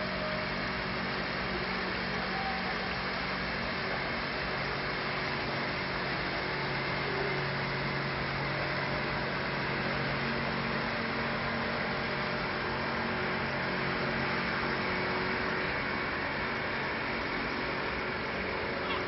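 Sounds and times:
outboard motor droning: 0.0 - 19.0.

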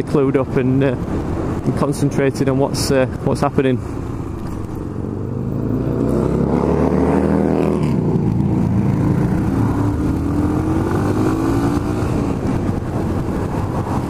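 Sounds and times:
motorcycle engine accelerating: 4.8 - 14.0.

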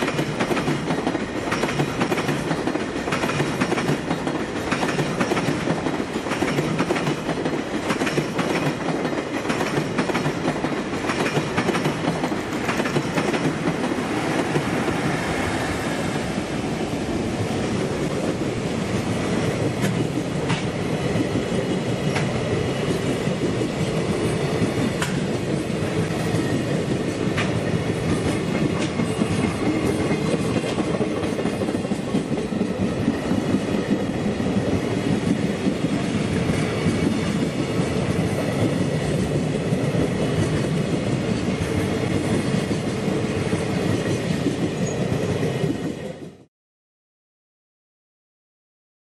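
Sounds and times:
wheels clacking over rail joints: 0.0 - 15.0
freight train rumbling past: 0.0 - 46.5.

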